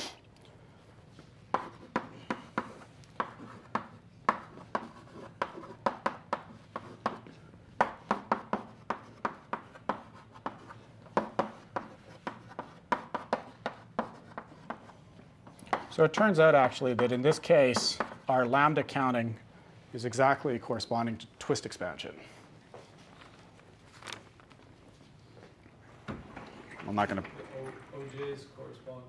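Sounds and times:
chalk tapping and scraping: 0:01.5 - 0:18.4.

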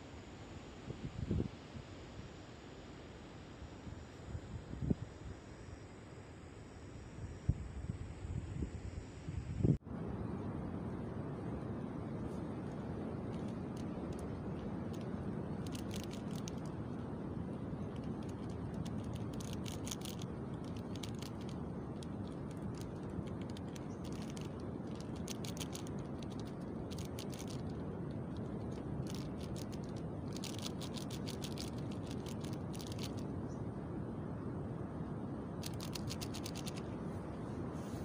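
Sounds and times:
rapid fine clicking: 0:12.6 - 0:16.8, 0:17.8 - 0:33.3, 0:35.6 - 0:36.9.

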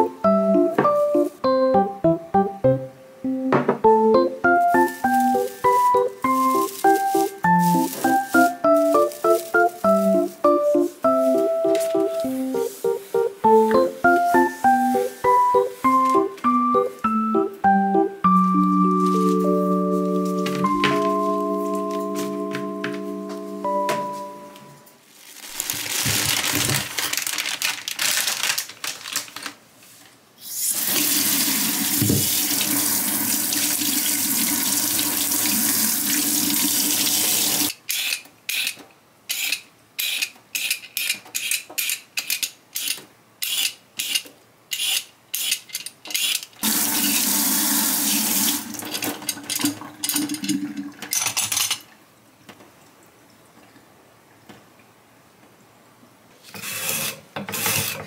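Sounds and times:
tap water running into sink: 0:30.7 - 0:37.7, 0:46.6 - 0:51.1.

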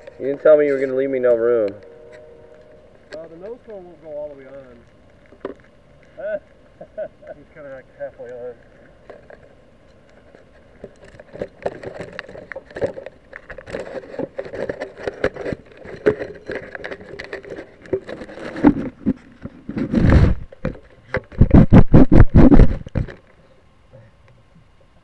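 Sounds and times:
handling noise rubbing and scraping: 0:00.0 - 0:05.7, 0:08.9 - 0:23.3.

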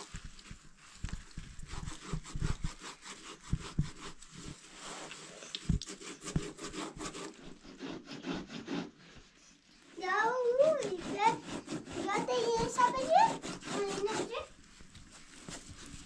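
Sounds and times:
cloth rustling and rubbing: 0:00.0 - 0:16.0.

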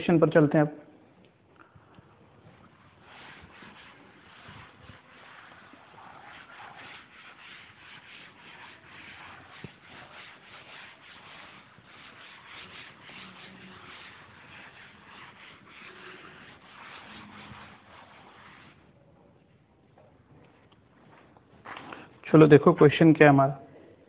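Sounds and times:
eraser rubbing on chalkboard: 0:02.3 - 0:19.0.

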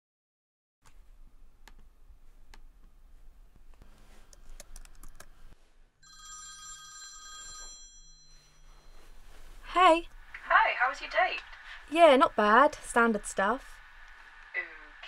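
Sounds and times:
laptop keystrokes and clicks: 0:04.3 - 0:05.4
mobile phone ringtone: 0:06.0 - 0:09.2.

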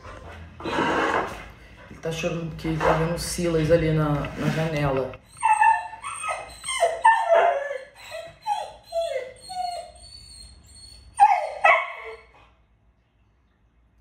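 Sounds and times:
dog whining and crying: 0:05.2 - 0:12.4.

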